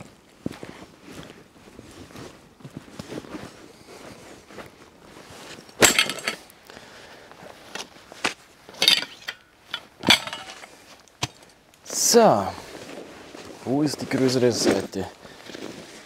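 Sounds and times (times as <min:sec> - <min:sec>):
tent poles clattering and clinking: 0:02.2 - 0:06.8, 0:07.4 - 0:12.0, 0:12.6 - 0:16.0.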